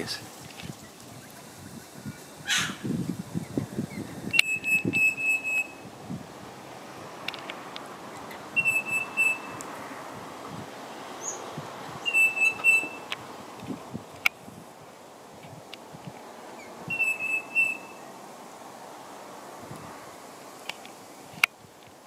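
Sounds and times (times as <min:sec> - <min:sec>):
hoarse bird call: 0:00.0 - 0:06.0, 0:08.0 - 0:10.2, 0:11.1 - 0:13.5, 0:16.4 - 0:18.2
parrot whistling high notes: 0:04.3 - 0:05.8, 0:08.6 - 0:09.6, 0:12.0 - 0:13.1, 0:16.9 - 0:18.0.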